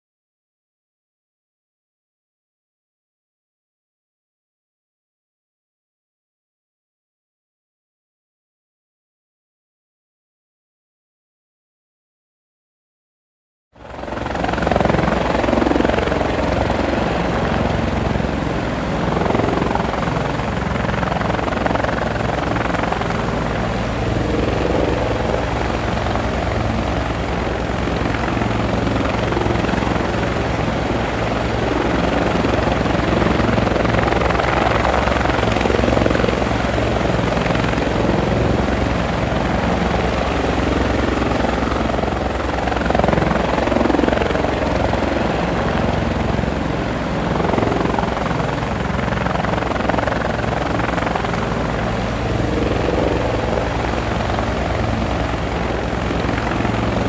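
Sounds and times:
helicopter rotor whirring: 13.8 - 57.0.

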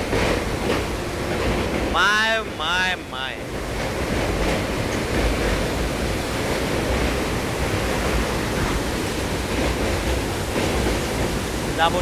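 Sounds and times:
train running rumble: 0.0 - 12.0
wind on microphone: 3.4 - 11.8.

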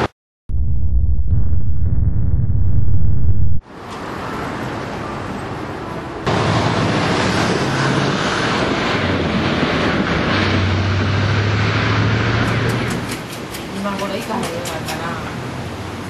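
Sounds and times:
traffic: 3.6 - 16.0.

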